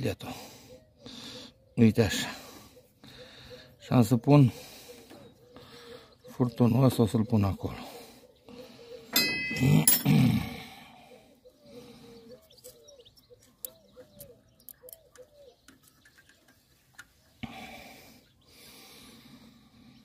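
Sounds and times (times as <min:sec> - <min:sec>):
metal tools clinking: 0:09.1 - 0:10.3.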